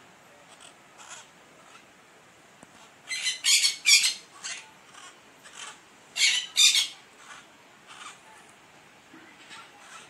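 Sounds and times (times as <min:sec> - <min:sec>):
parakeets squawking: 0:00.5 - 0:01.9, 0:02.8 - 0:08.5, 0:09.4 - 0:10.0.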